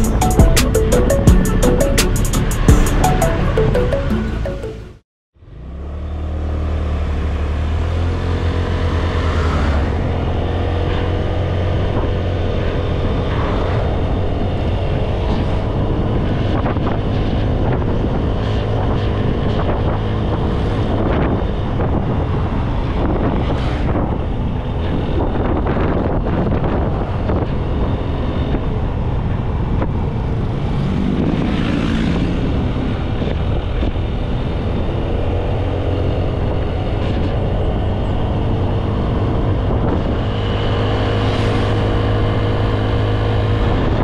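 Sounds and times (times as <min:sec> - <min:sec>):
wind buffeting microphone: 0:09.8 - 0:44.0.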